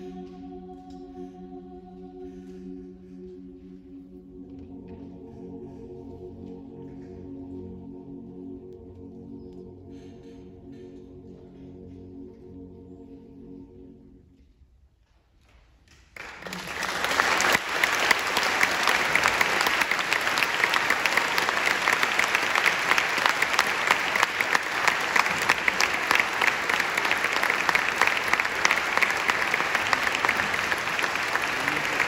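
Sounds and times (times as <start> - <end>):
audience applauding: 16.2 - 32.0.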